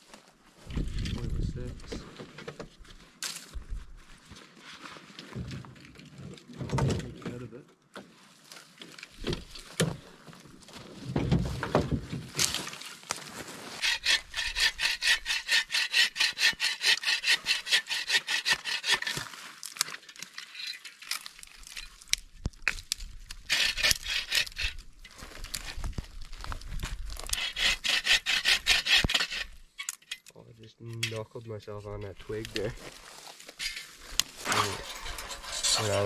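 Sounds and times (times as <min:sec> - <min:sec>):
hand saw cutting sticks: 0:13.8 - 0:19.3, 0:23.5 - 0:24.8, 0:27.2 - 0:30.0, 0:34.4 - 0:36.0.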